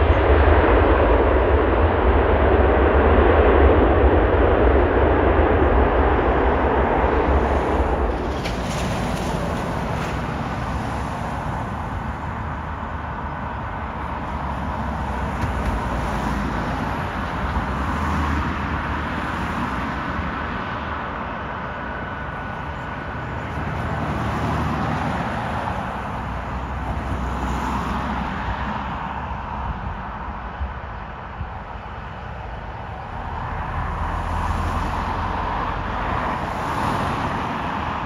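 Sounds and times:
jet engines rumbling: 0.0 - 38.0.

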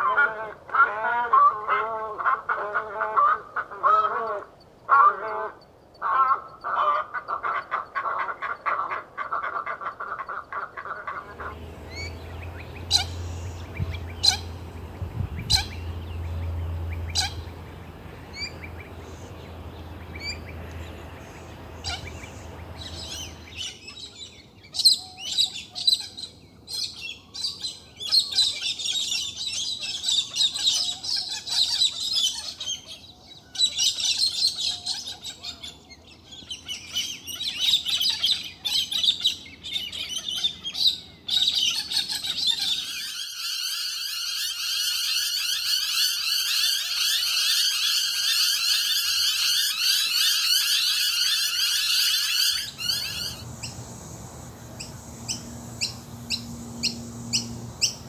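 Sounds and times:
birds calling and chattering: 0.0 - 58.0
low steady hum: 10.0 - 24.8, 52.6 - 58.0.

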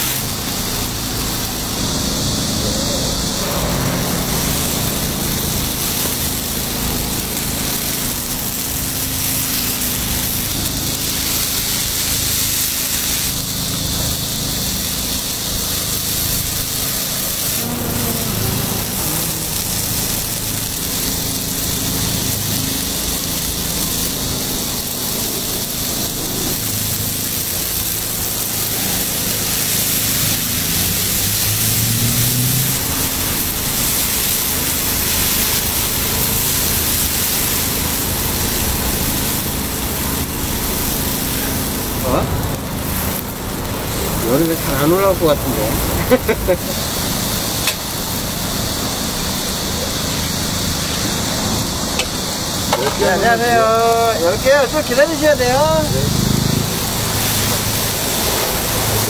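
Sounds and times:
low machine hum: 0.0 - 31.7
batter sizzling in a pan: 0.0 - 59.0.

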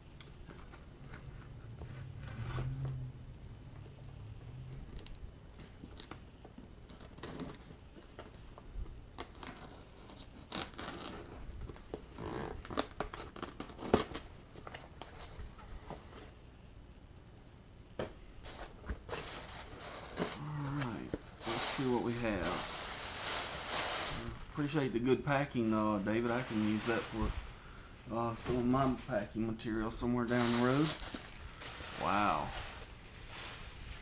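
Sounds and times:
packing tape tearing: 9.2 - 15.2.

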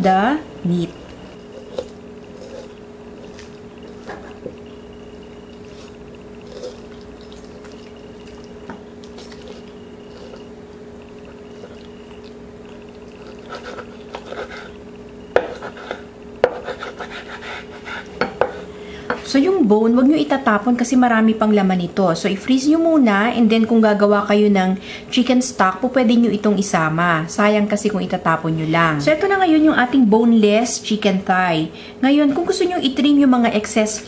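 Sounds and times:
steady hum: 0.0 - 34.0
knife scraping bone on cutting board: 1.0 - 10.6, 13.0 - 18.7.

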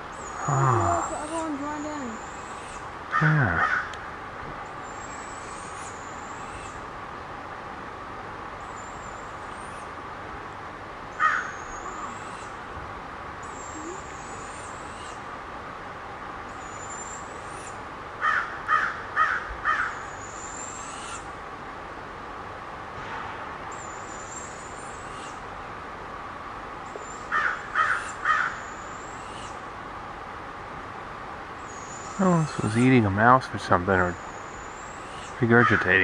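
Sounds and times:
crows cawing: 3.1 - 4.0, 11.1 - 12.3, 18.2 - 20.0, 27.3 - 28.7, 35.6 - 36.0.

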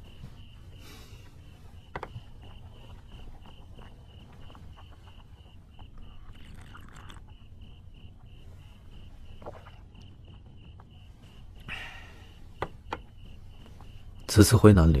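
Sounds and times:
faint rustles: 0.0 - 14.4
cricket chirping: 0.0 - 15.0
low background hum: 0.0 - 15.0.

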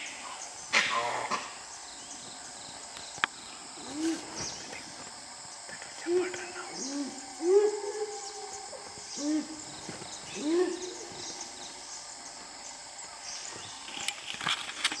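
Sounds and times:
whistling hoot calls: 10.3 - 11.6.

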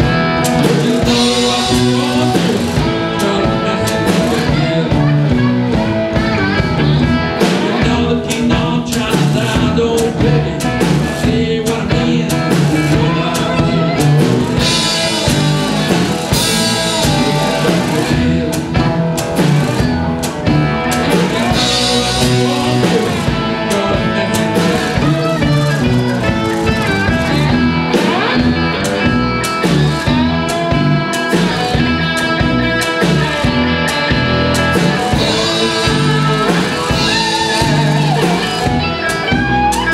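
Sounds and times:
blues-rock band playing: 0.0 - 39.9.

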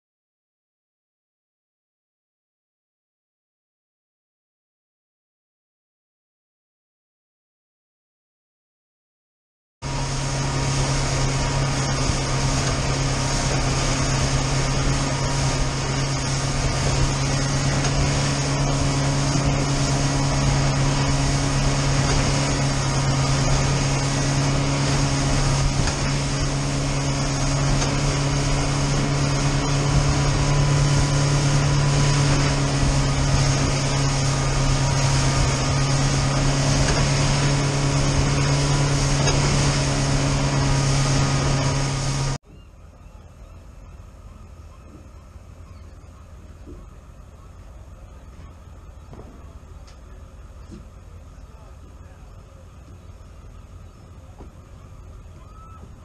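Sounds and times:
rushing water: 9.8 - 42.4
boat engine drone: 9.8 - 56.0
wind noise: 10.5 - 42.3.

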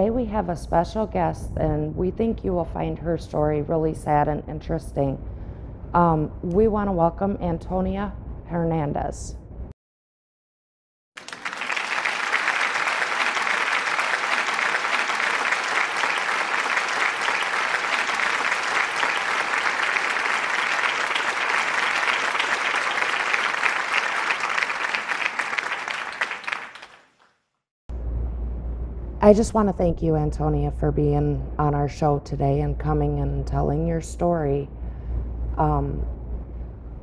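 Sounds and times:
audience clapping: 11.2 - 27.4.

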